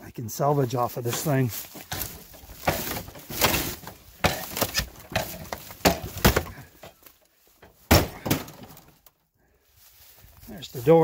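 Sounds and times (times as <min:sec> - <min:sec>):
wooden boards being pried apart: 0:01.8 - 0:07.0, 0:07.8 - 0:09.0.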